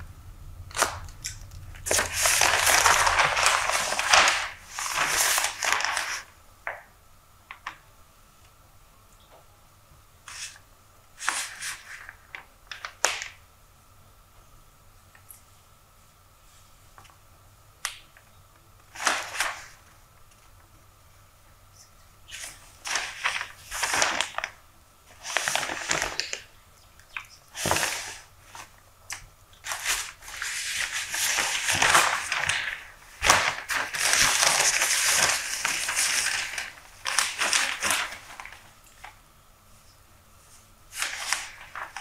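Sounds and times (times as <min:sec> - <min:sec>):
newspaper pages rustling: 0:01.8 - 0:06.8, 0:18.9 - 0:19.9, 0:22.3 - 0:26.5, 0:27.5 - 0:39.2, 0:40.4 - 0:42.0.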